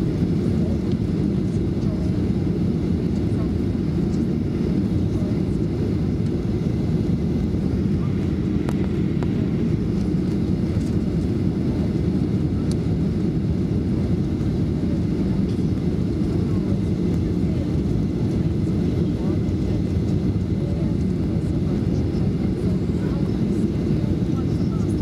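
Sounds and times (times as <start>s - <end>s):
airplane cabin rumble: 0.0s - 25.0s.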